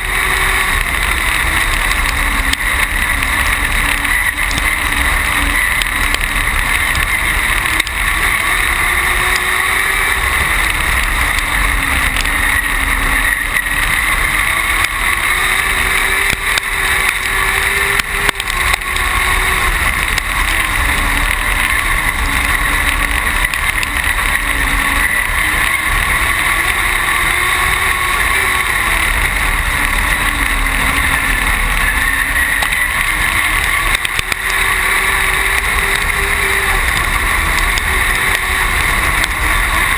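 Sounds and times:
race car engine running hard: 0.0 - 39.9
wind and chassis rumble: 0.0 - 39.9.

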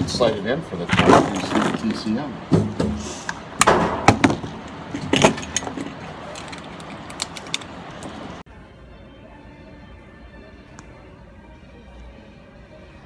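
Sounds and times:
metallic clicks and clatter: 4.9 - 8.2.

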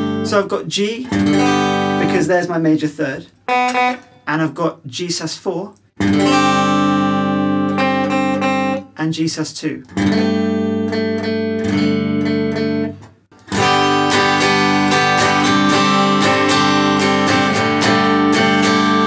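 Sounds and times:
clean electric guitar strumming: 0.0 - 2.6, 3.4 - 4.6, 6.0 - 9.0, 9.8 - 19.0.

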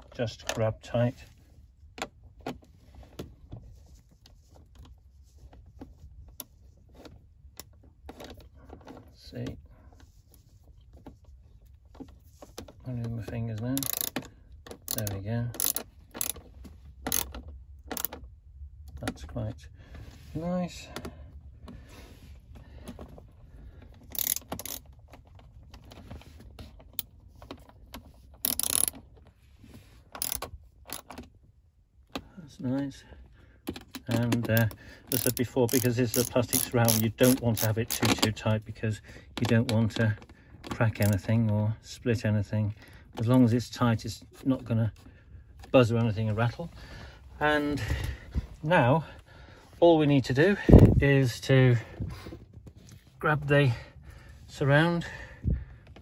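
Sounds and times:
ratchet wrench clicks: 13.8 - 14.3, 14.9 - 16.4, 17.0 - 18.1, 24.1 - 24.8, 28.4 - 29.0, 30.2 - 31.2, 34.6 - 38.3, 41.0 - 41.2.

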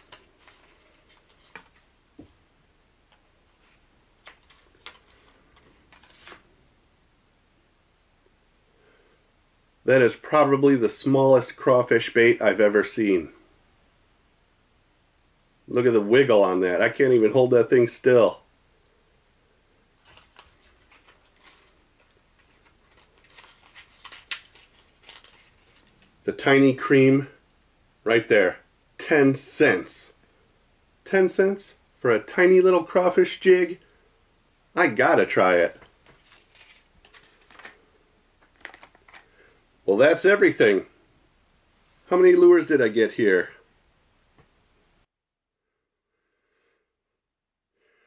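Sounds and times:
plastic package crinkling: 4.0 - 6.5, 20.0 - 26.1, 36.0 - 37.8, 38.4 - 39.4
lure package clicking and crinkling: 22.4 - 25.8, 38.4 - 39.3.

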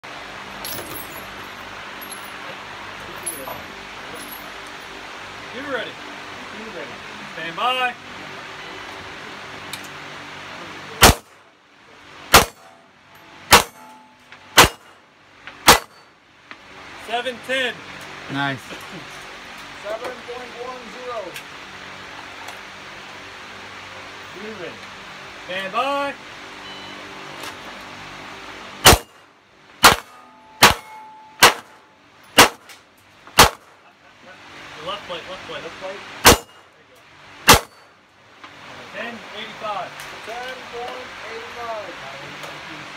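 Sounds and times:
faint ringing of steel targets: 0.6 - 4.9, 12.3 - 14.8, 15.6 - 16.2, 29.8 - 32.6, 36.2 - 36.8, 37.5 - 37.9
pistol shots: 11.0 - 11.3, 12.3 - 12.7, 13.5 - 13.9, 14.6 - 14.9, 15.6 - 16.0, 28.8 - 29.2, 29.8 - 31.8, 32.4 - 32.7, 33.4 - 33.7, 36.2 - 36.6, 37.5 - 37.8.

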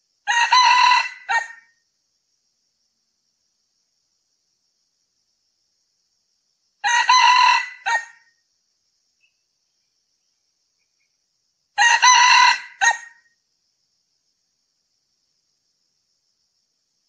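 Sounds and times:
rooster crowing: 0.2 - 1.7, 6.8 - 8.3, 11.8 - 13.3.

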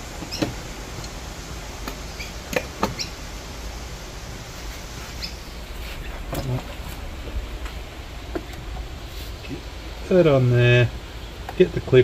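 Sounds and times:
low steady hum: 0.0 - 12.0
high bird chirps: 2.1 - 3.2, 5.1 - 6.2.

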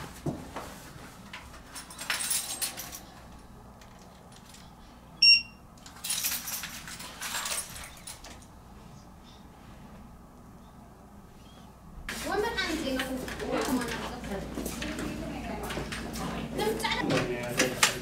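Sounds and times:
metallic jangling and clatter: 1.7 - 3.2, 5.8 - 8.4
short high-pitched beep: 5.2 - 5.6.

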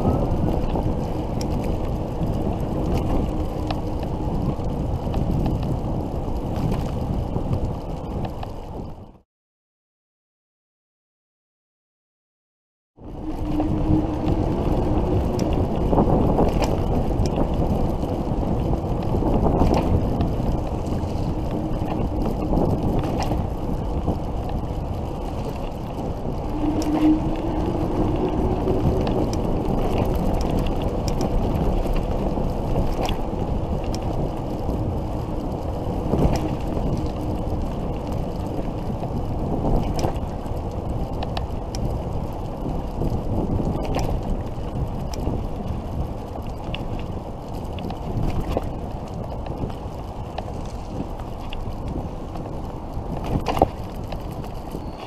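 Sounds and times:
wind on microphone: 0.0 - 9.2, 13.0 - 55.0
faint rising whine: 25.4 - 30.1.

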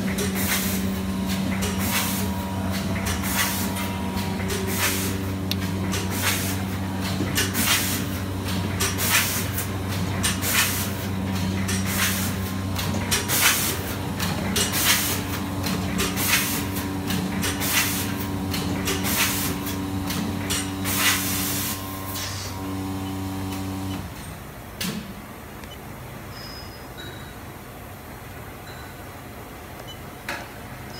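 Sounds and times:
machine motor hum: 0.0 - 10.3, 15.2 - 24.2
machine hissing bursts: 0.1 - 3.9, 20.7 - 24.0.

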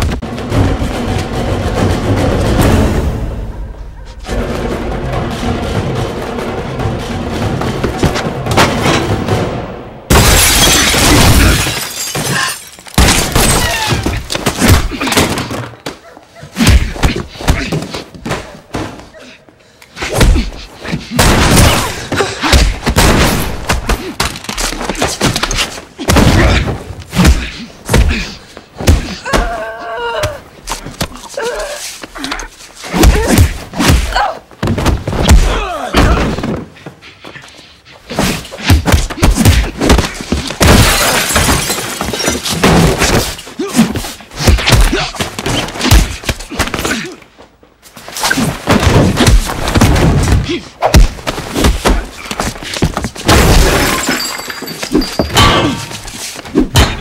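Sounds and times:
glass shattering: 10.1 - 13.9, 40.6 - 43.4, 53.3 - 56.0
punches landing: 20.1 - 29.6, 32.9 - 36.7, 38.1 - 47.2, 48.3 - 54.4
grunts: 43.6 - 47.4.

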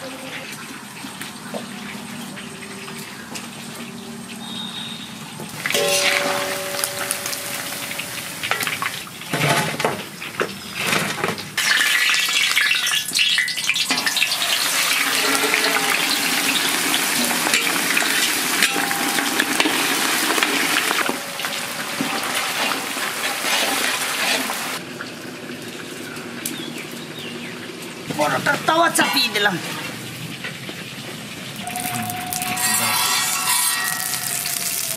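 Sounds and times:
chicken deep-frying in oil: 0.0 - 34.9
spatula stirring in wok: 14.6 - 24.8.

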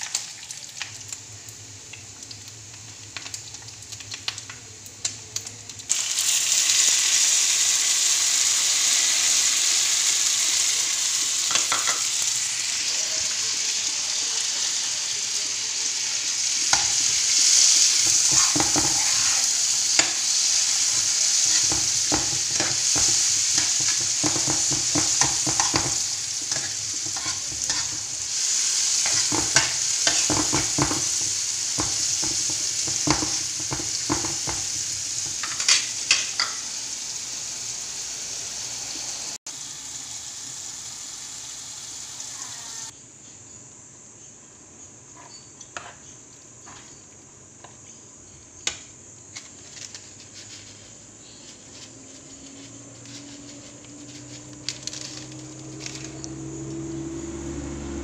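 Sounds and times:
food sizzling in a frying pan: 0.0 - 43.0, 48.8 - 58.0
metal spoon scraping a pan: 16.7 - 36.6.

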